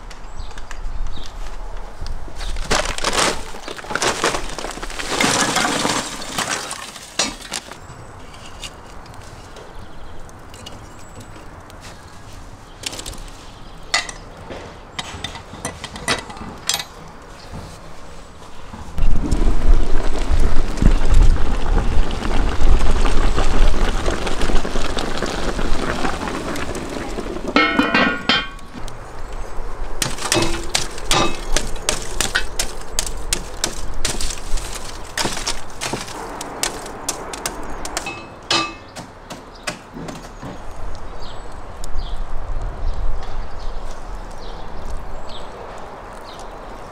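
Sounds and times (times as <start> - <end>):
metal poker raking coals: 2.5 - 14.4, 30.0 - 40.4
metallic clatter: 27.6 - 28.7, 38.0 - 39.1.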